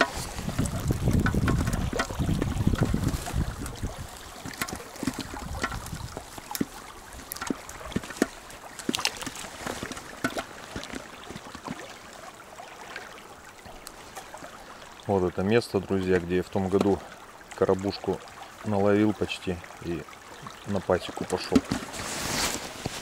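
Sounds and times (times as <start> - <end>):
clothing and gear rustling: 0.0 - 1.0, 2.4 - 8.2, 8.8 - 11.8, 21.6 - 23.0
stream running over stones: 0.0 - 23.0.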